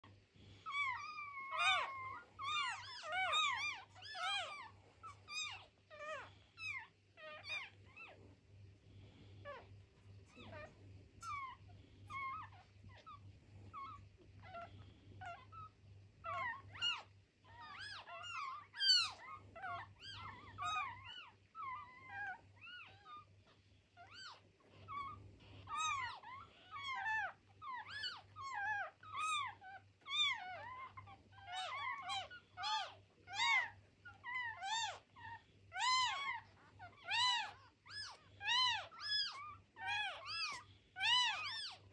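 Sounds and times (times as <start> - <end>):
kittens mewing: 0.1 - 8.2, 9.3 - 41.9.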